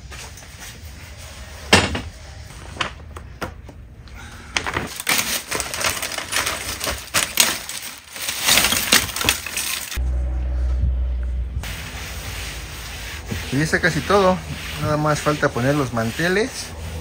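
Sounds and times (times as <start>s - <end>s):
plastic bottles shifting: 4.6s - 10.0s
plastic bag crinkling: 4.9s - 10.0s.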